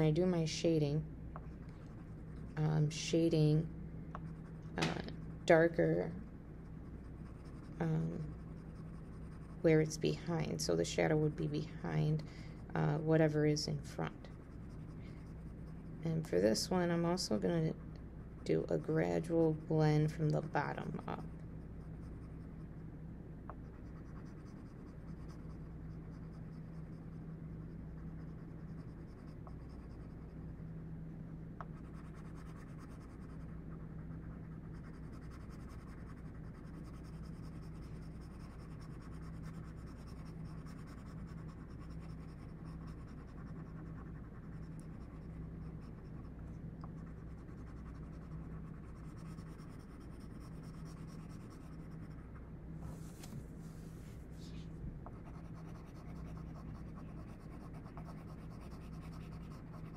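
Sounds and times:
steady low hum: 0.0 - 59.9
pencil scratching on paper: 4.3 - 6.2, 6.9 - 12.1, 12.8 - 17.8, 18.4 - 21.3, 23.7 - 30.4, 31.7 - 46.3, 46.9 - 52.2, 55.2 - 59.9.

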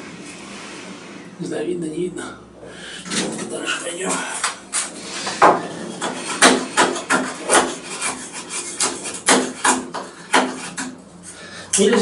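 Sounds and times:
knife scraping wood: 4.4 - 11.4.

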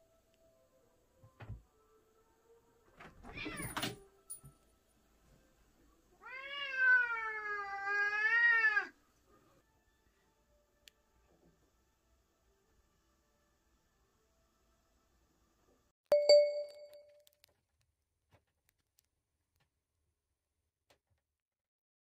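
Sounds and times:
cat yowling: 3.2 - 3.8, 6.2 - 9.0.

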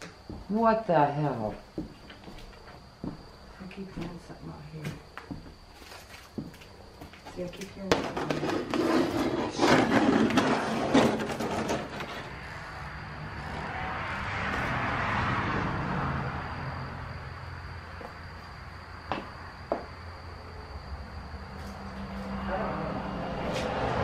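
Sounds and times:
footsteps scuffing on littered floor: 4.8 - 7.8
vehicle passing: 12.1 - 24.0.

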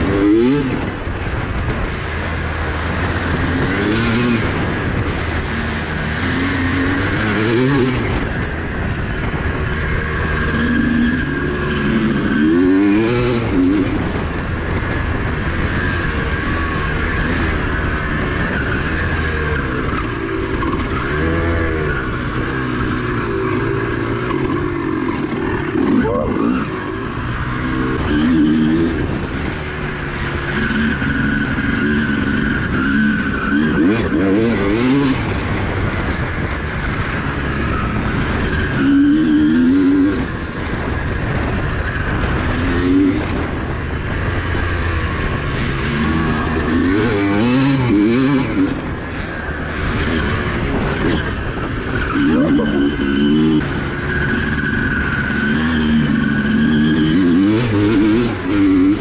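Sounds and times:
steady rush of wind noise: 0.0 - 59.0
two-stroke motorcycle engine revving: 0.0 - 59.0.

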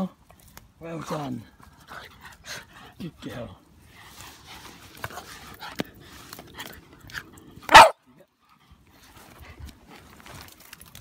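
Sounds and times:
rustling: 3.8 - 7.5
dog barking: 7.7 - 8.0.

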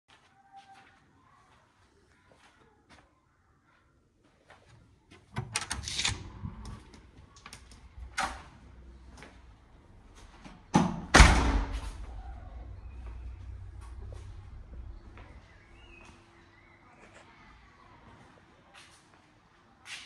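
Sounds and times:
door lock and handle clicking: 5.4 - 8.4
loud thud: 10.8 - 12.0.

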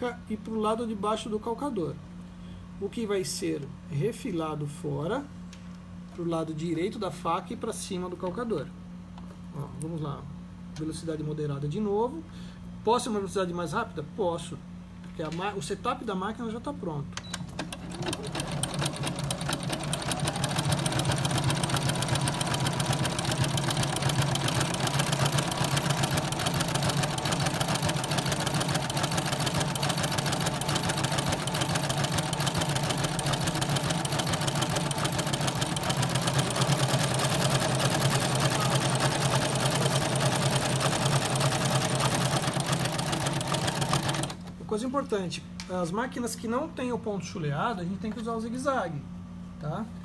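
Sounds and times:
sewing machine clatter: 17.5 - 44.4.

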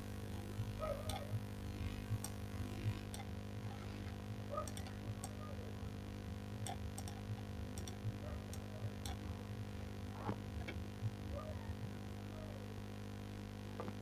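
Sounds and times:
low electrical hum: 0.0 - 14.0
computer mouse clicks: 1.0 - 1.4, 2.2 - 2.4, 3.0 - 3.3, 4.6 - 5.4, 6.6 - 9.2.

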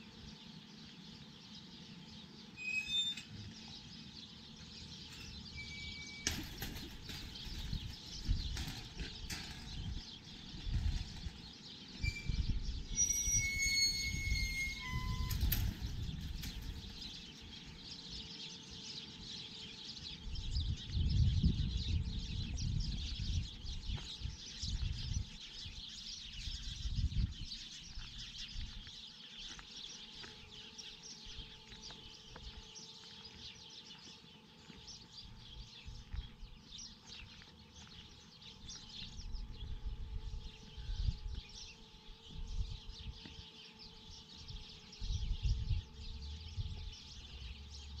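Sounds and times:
small birds chirping: 0.0 - 48.0.

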